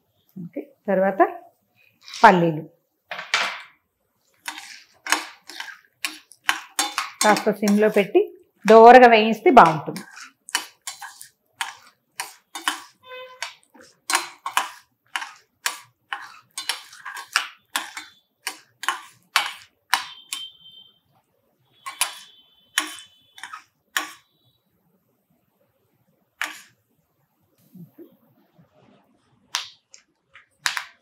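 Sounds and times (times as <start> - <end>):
spoon clinking against steel pan: 4.5 - 8.0, 9.6 - 20.5, 21.9 - 24.2.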